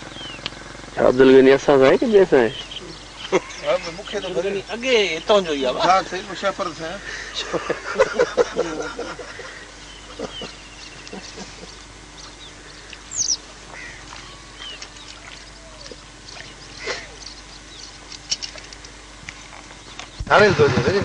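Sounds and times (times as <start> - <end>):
bird chirps: 0.0 - 0.7, 1.5 - 6.2, 9.7 - 18.6
faint steady hum: 0.0 - 21.0.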